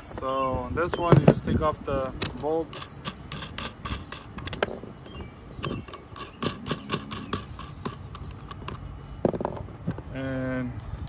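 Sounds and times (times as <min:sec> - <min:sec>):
nuts clicking off studs: 0:02.1 - 0:10.1.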